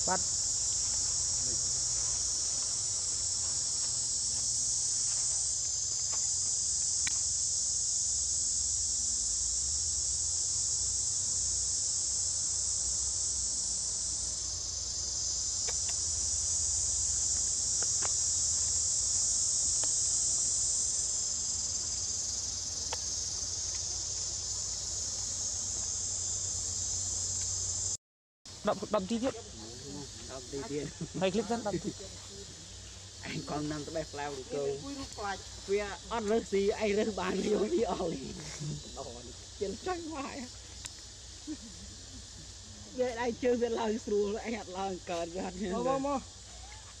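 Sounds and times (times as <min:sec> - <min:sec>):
insects chorus: 0:00.0 - 0:47.0
faint ticks: 0:15.6 - 0:16.1.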